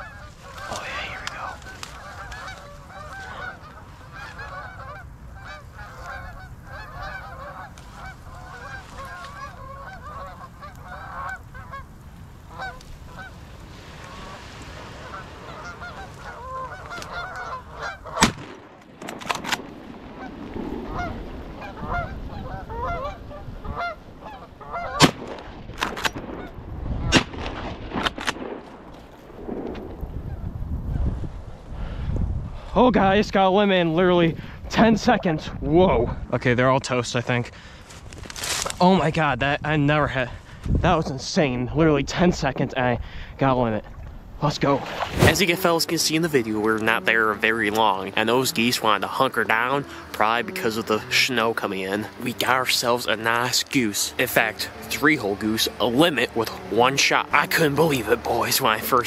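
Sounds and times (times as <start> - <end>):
geese honking: 0.0 - 18.4, 20.1 - 25.6, 45.2 - 59.0
wind noise: 0.0 - 59.0
shotgun shot: 18.2 - 19.8, 25.0 - 26.4, 27.1 - 28.8.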